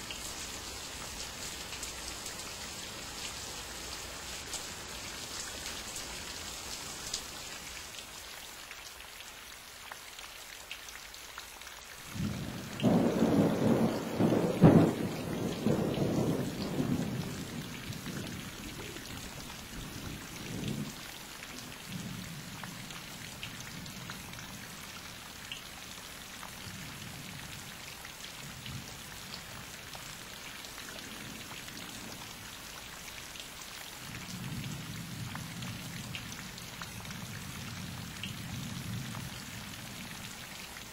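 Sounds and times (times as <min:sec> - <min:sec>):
steady rain: 0:00.0 - 0:40.9
thunder rumbling: 0:12.2 - 0:21.0.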